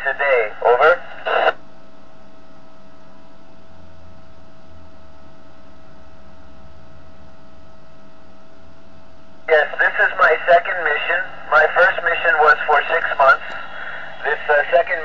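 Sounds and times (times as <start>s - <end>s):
radio hum and hiss: 0.0s - 1.6s, 9.4s - 15.0s.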